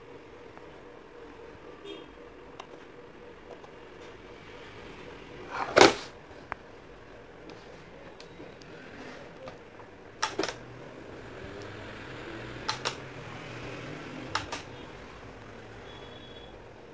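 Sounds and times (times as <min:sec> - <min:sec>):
fan motor whirring: 0:08.2 - 0:16.9
push-button switch clicking: 0:10.2 - 0:10.6, 0:12.6 - 0:13.0, 0:14.3 - 0:14.7.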